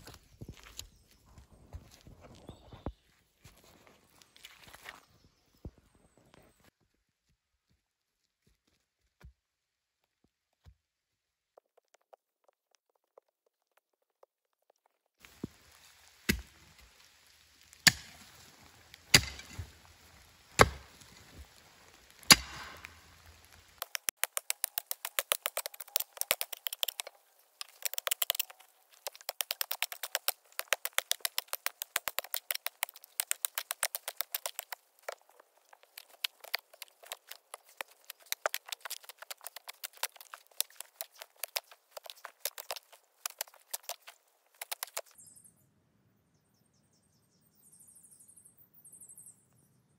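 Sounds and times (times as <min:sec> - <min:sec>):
hand tool chopping into dirt: 0:16.3 - 0:16.6, 0:17.8 - 0:19.9, 0:20.5 - 0:21.3, 0:22.1 - 0:23.0
rapid even ticking: 0:23.8 - 0:45.1.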